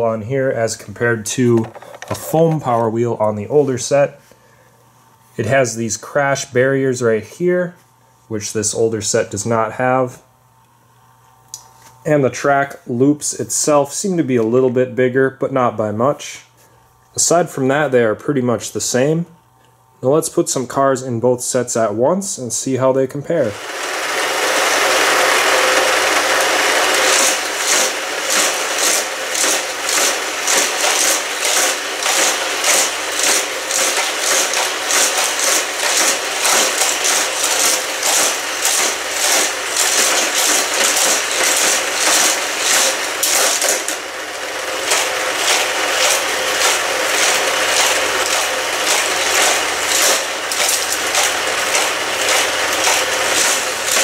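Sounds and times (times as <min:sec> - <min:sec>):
toy cars rattling on plastic track: 0:01.5 - 0:02.3, 0:23.5 - 0:54.0
power wheels whirring: 0:01.6 - 0:02.8, 0:23.5 - 0:54.0
fast high clatter: 0:23.5 - 0:54.0.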